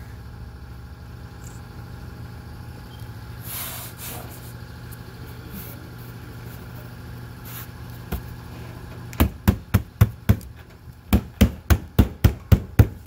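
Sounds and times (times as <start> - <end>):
steady low hum: 0.0 - 13.0
sharp strikes on wooden paneling: 9.2 - 10.5, 11.1 - 13.0.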